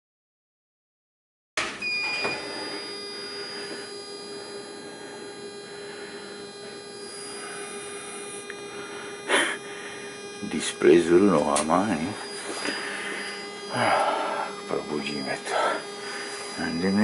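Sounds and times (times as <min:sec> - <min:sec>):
electrical hum and high whine: 0:01.6 - 0:17.0
short high beep: 0:12.2 - 0:17.0.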